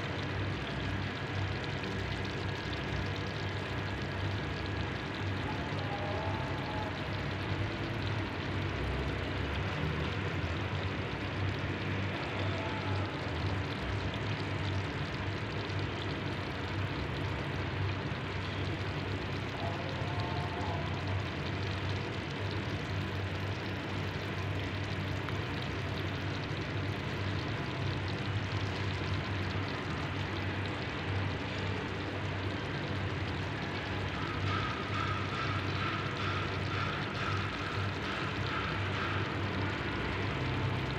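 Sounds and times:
pot of food simmering and bubbling: 0:00.0 - 0:40.9.

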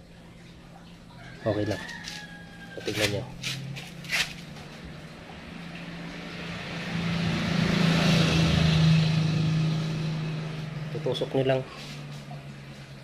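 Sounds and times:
road noise: 0:00.0 - 0:13.0
vehicle engine passing by: 0:03.0 - 0:13.0.

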